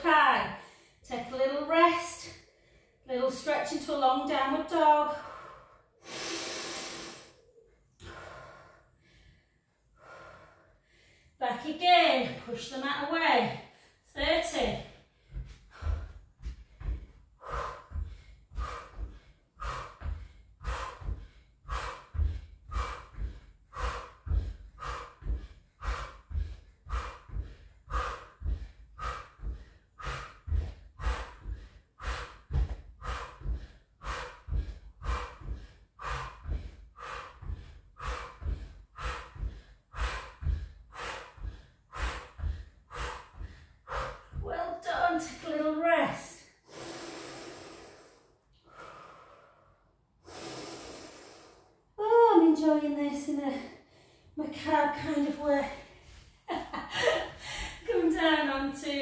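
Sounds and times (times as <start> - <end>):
woman breathing hard: 2.3 - 3.1, 5.1 - 11.4, 13.6 - 44.5, 46.4 - 52.0, 55.8 - 58.1.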